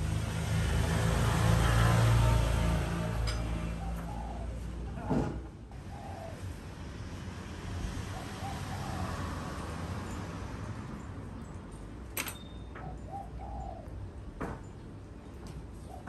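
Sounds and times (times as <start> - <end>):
dove cooing: 3.7 - 4.7, 5.7 - 6.7, 8.0 - 9.6, 12.8 - 14.0
sharp clink: 12.2 - 12.7.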